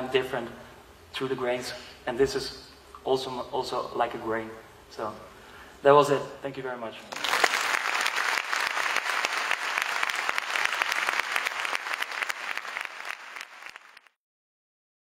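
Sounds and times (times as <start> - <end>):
audience applauding: 7.1 - 14.2.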